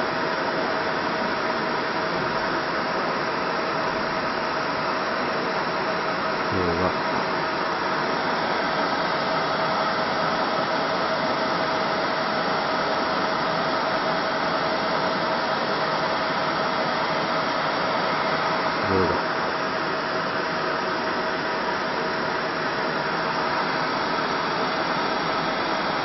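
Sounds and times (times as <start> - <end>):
machine fan hum and hiss: 0.0 - 26.0
constant mid-pitched tone: 17.6 - 19.6.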